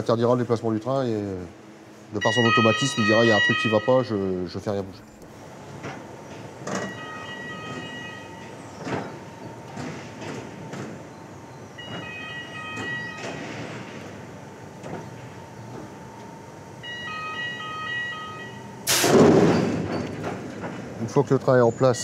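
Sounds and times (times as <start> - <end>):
roller coaster train rolling: 0.0 - 22.0
electronic warning signal: 2.2 - 4.4, 6.7 - 9.7, 11.8 - 13.7, 16.8 - 19.0.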